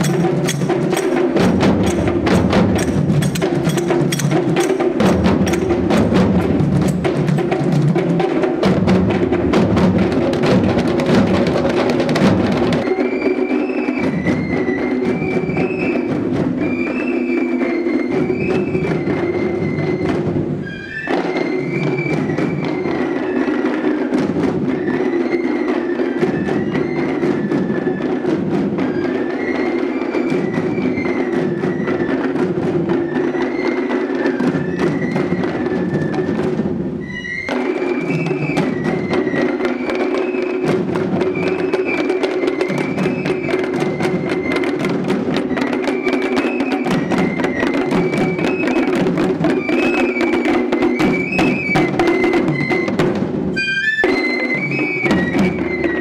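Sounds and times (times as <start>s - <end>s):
hand cymbals and drums: 0.0s - 56.0s
wavering wind instrument melody: 12.7s - 24.1s, 24.7s - 56.0s.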